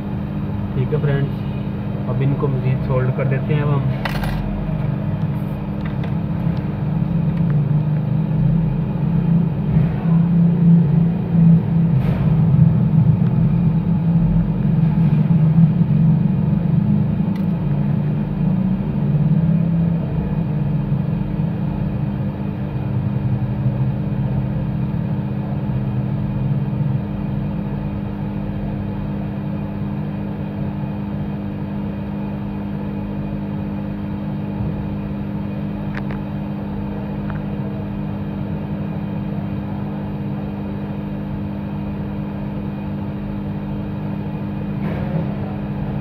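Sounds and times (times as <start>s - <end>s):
low machine hum: 0.0s - 46.0s.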